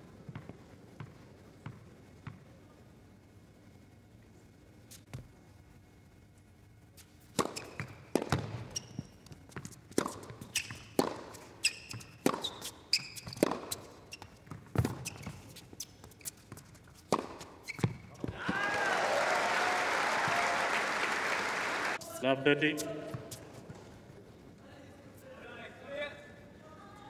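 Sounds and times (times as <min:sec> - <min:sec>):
shoes squeaking on court: 0:07.0 - 0:18.4
tennis racket striking ball: 0:07.3 - 0:08.8, 0:09.6 - 0:15.4, 0:16.9 - 0:18.0
tennis ball bouncing: 0:07.3 - 0:18.5.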